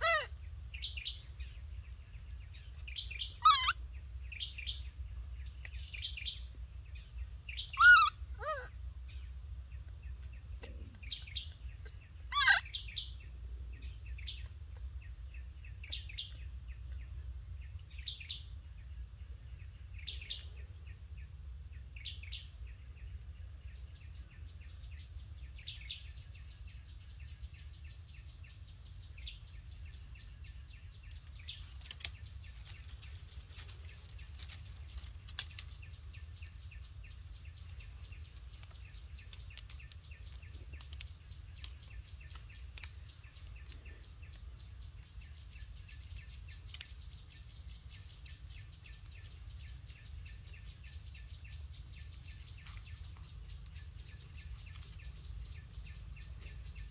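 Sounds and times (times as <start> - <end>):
birds chirping: 0.0 - 56.9
insects chirring: 0.0 - 56.9
low steady rumble: 0.0 - 56.9
small crackles and clicks: 30.9 - 47.3, 47.9 - 56.9.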